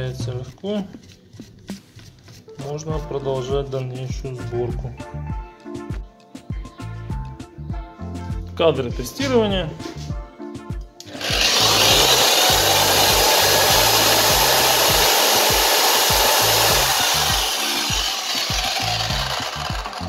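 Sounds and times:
electric string trimmer whirring: 11.0s - 20.0s.

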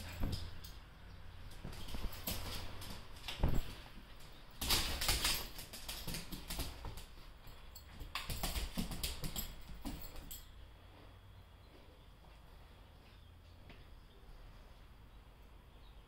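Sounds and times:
dog claws clicking on floor: 1.5s - 10.5s.

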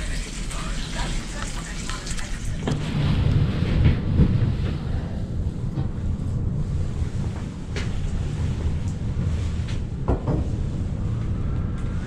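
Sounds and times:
strong wind buffeting a hut: 2.6s - 12.0s.

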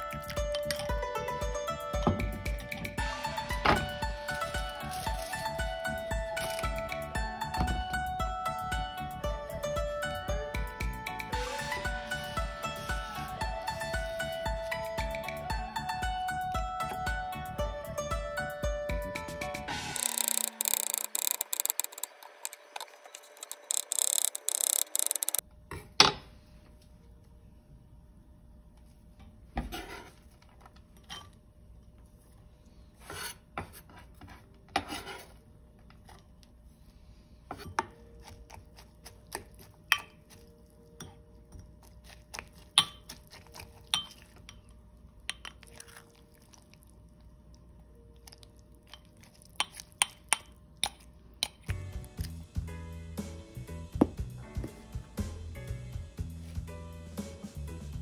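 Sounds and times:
spatula stirring in glass bowl: 37.6s - 44.7s, 48.8s - 51.7s.

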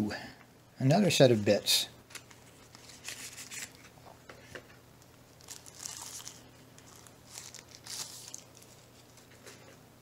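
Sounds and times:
plastic wrap crinkling: 5.0s - 9.6s.

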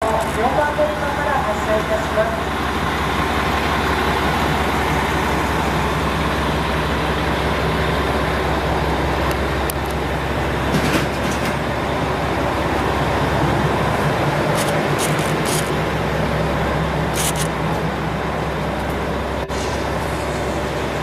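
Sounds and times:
diesel engine idling hum: 0.0s - 10.7s, 11.6s - 21.0s
short clicks: 17.2s - 17.5s.

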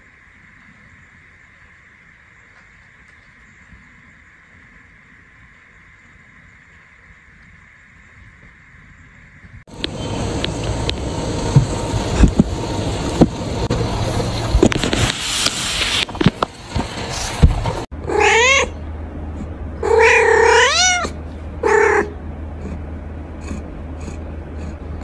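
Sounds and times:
scratchy rustling with clicks: 9.8s - 17.9s
kitten meowing: 18.0s - 18.8s, 19.8s - 22.1s.

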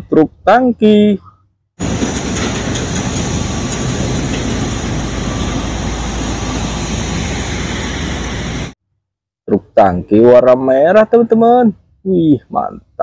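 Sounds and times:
heavy trucks driving on road: 1.8s - 8.8s.

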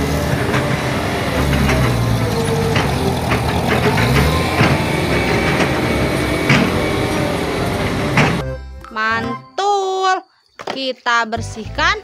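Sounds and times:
machinery clanks and knocks: 0.0s - 8.4s
road roller diesel engine running: 0.0s - 8.4s.

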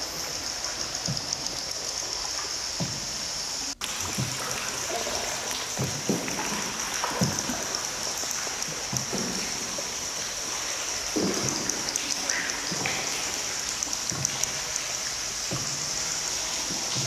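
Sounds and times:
steady high hiss: 0.0s - 17.0s
water trickling and dripping: 0.0s - 17.0s.

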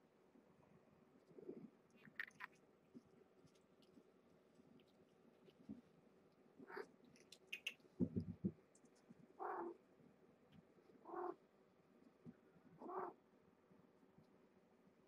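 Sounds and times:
cat meowing: 9.4s - 9.8s.

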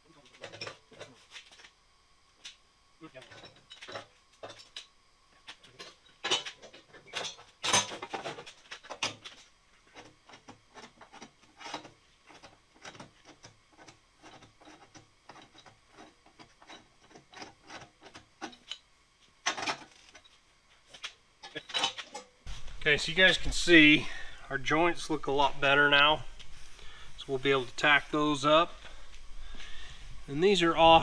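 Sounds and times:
metal clicks knocks and scrapes: 3.2s - 22.3s.

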